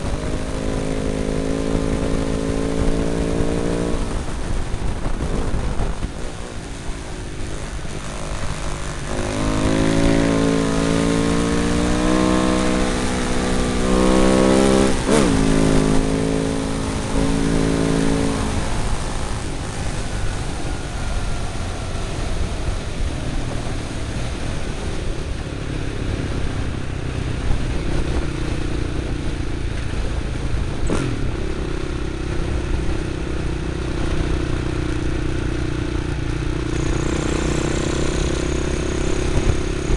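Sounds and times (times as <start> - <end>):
wind rush: 0.0 - 31.7
motorcycle engine shifting gears: 0.0 - 39.9.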